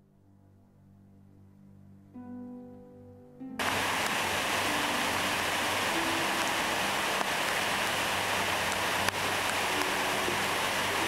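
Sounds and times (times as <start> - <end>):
waterfall rushing: 3.6 - 11.0.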